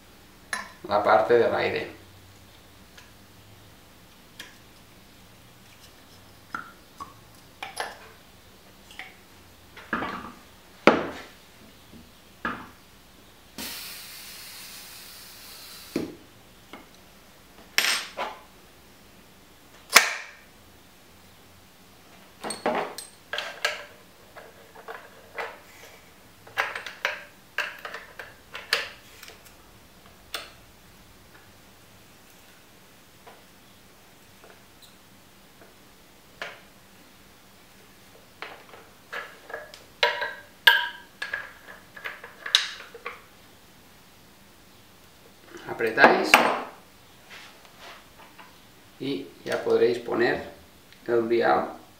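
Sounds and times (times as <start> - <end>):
air hiss: 13.6 - 16.3.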